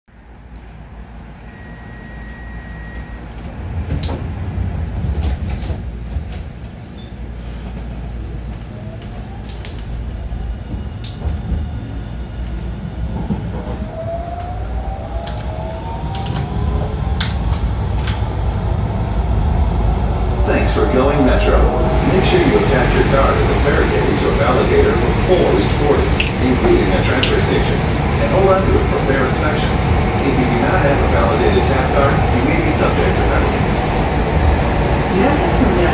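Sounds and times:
light rail car rumbling: 0.1 - 35.9
brief high tone: 1.5 - 3.2.

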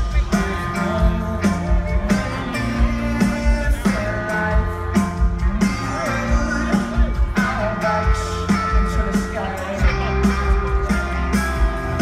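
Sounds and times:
guitar: 0.0 - 12.0
male lead vocal: 0.0 - 12.0
pop-rock band over pa: 0.0 - 12.0
steady drum beat: 0.0 - 12.0.

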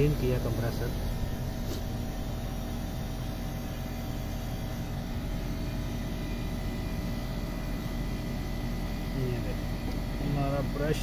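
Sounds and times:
air conditioner unit humming: 0.0 - 11.0.

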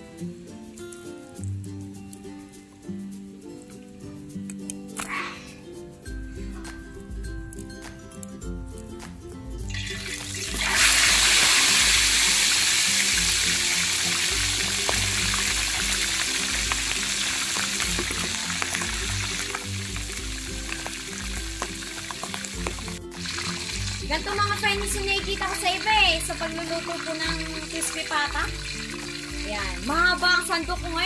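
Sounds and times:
background music: 0.0 - 31.0
meat sizzling in hot oil: 9.7 - 31.0.

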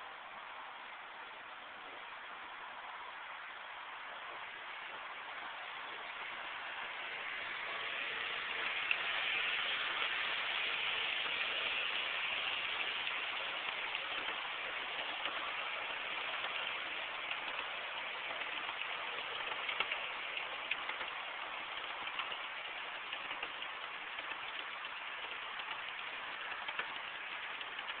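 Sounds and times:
model train wheels on rails: 0.0 - 28.0
small scattered clicks: 11.1 - 28.0.

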